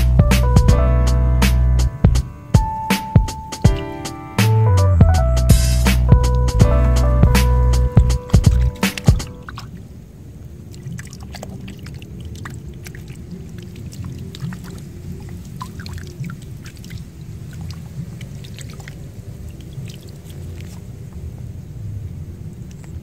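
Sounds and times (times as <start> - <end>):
steady low rumble: 0.0 - 2.9, 3.6 - 10.7
hands squelching in wet mud: 8.3 - 9.8, 10.7 - 20.9.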